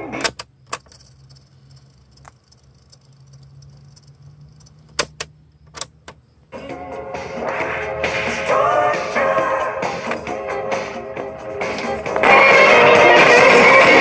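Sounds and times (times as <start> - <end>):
music from cassette tape: 6.5 - 14.0.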